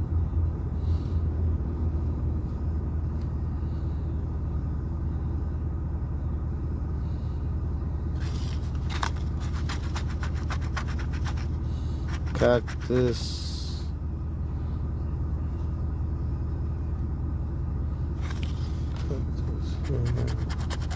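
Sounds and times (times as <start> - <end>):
coin scratching lottery ticket: 8.2 - 13.2, 19.7 - 20.9.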